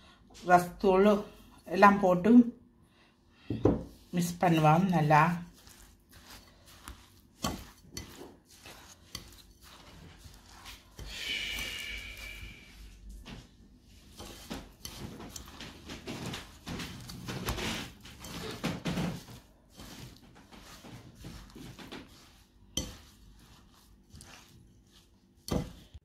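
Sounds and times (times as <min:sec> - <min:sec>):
squishing of wet mince: 0:03.4 - 0:26.0.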